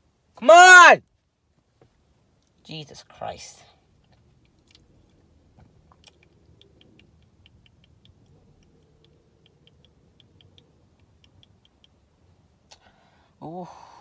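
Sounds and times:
faint low car cabin hum: 0:00.0 - 0:14.0
light ticks: 0:04.0 - 0:12.9.

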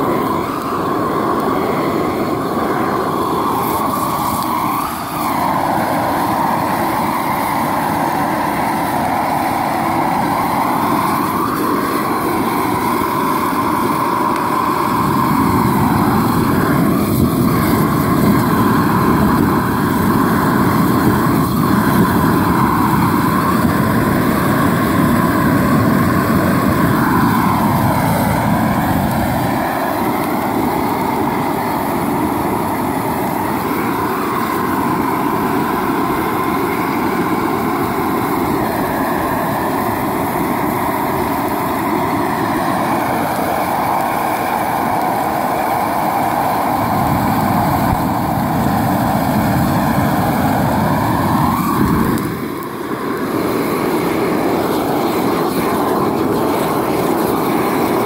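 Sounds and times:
propane torch rushing: 0:00.0 - 0:58.0.

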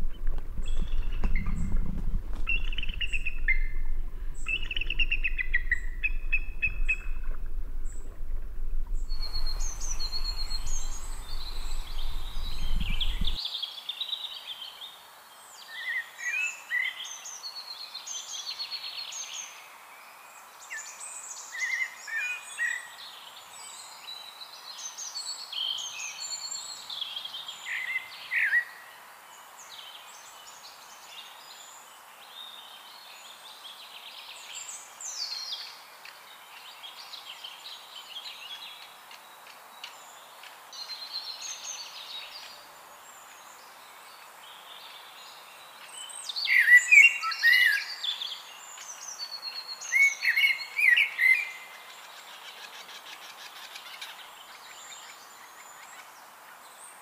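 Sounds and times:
steady low rumble: 0:00.0 - 0:13.4
songbirds singing: 0:00.0 - 0:57.0.

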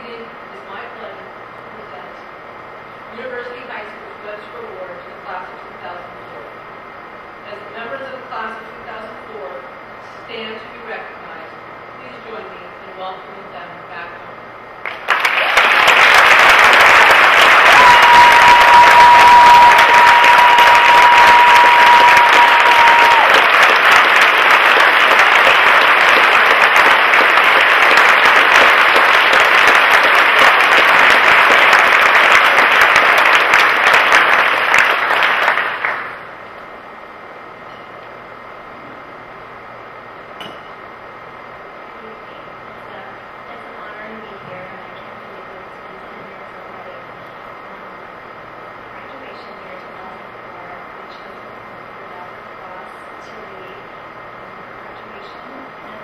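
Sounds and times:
audience applauding: 0:14.8 - 0:36.3.

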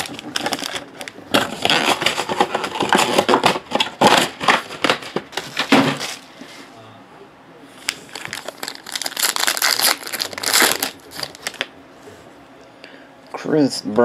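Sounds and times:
foil packs crinkling: 0:00.0 - 0:06.3, 0:07.9 - 0:11.7.

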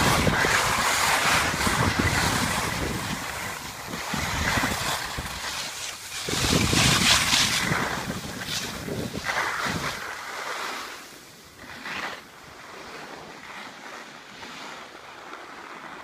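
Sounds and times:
wind on microphone: 0:00.0 - 0:10.9
skis scraping packed snow: 0:00.0 - 0:16.0.

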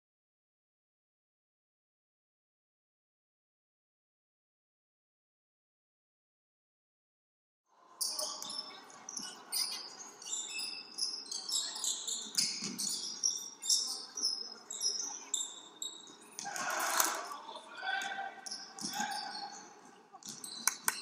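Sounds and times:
murmur of voices: 0:07.7 - 0:21.0
sneakers squeaking: 0:08.0 - 0:21.0.

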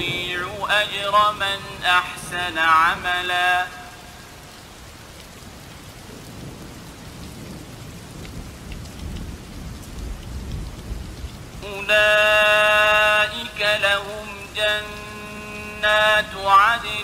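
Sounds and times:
low rumble of thunder: 0:00.0 - 0:04.3, 0:06.0 - 0:11.7
raindrop ticks: 0:00.0 - 0:17.0
steady rain falling: 0:00.0 - 0:17.0.

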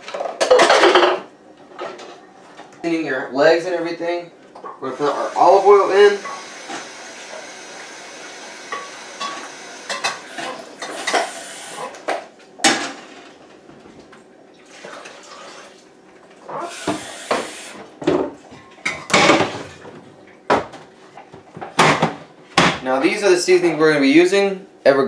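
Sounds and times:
kitchenware clattering: 0:00.0 - 0:02.6, 0:18.0 - 0:22.8.

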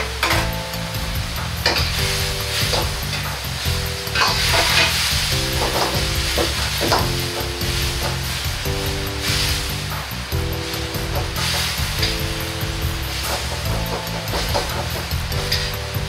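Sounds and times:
sauce sizzling and bubbling in a wok: 0:00.8 - 0:16.0
metal ladle scraping a wok: 0:04.1 - 0:07.1.

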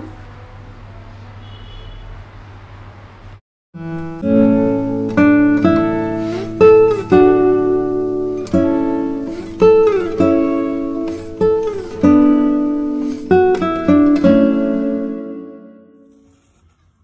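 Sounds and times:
acoustic guitar picking: 0:03.8 - 0:16.4.

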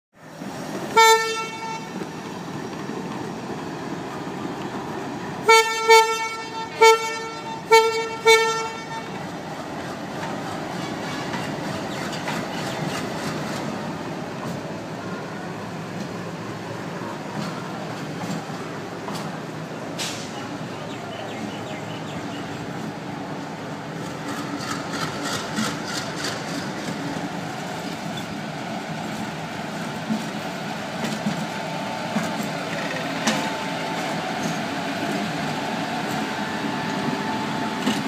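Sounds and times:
moving train rumble: 0:00.2 - 0:38.0
locomotive horn toots: 0:00.9 - 0:02.0, 0:05.4 - 0:09.3.

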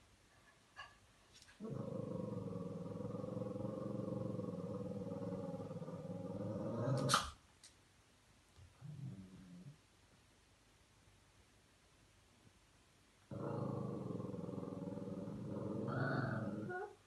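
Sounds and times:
dog growling: 0:01.6 - 0:07.3, 0:08.8 - 0:09.8, 0:13.3 - 0:17.0.

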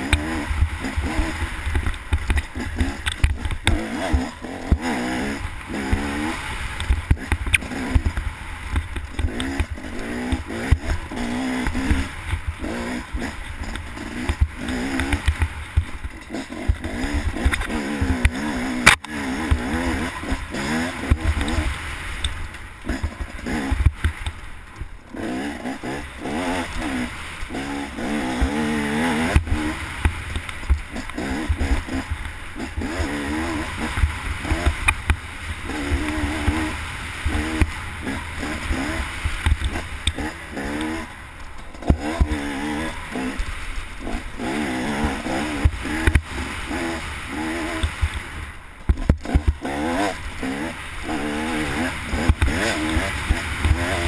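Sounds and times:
dirt bike engine revving: 0:00.0 - 0:54.0
knocks from bumps: 0:48.8 - 0:49.6.

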